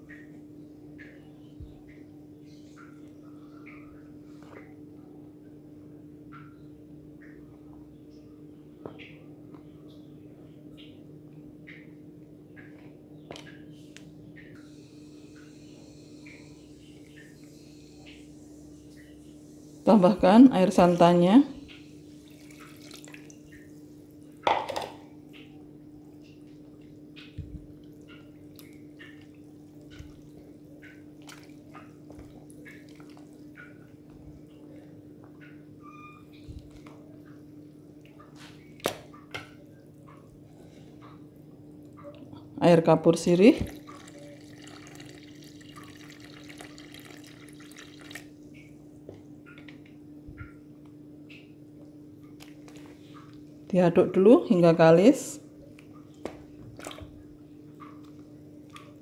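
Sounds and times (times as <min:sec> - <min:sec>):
faint steady hum: 0:00.0 - 0:59.0
batter dripping: 0:21.6 - 0:24.5, 0:43.6 - 0:53.6
water pouring into a bowl: 0:22.2 - 0:23.5, 0:43.6 - 0:48.4.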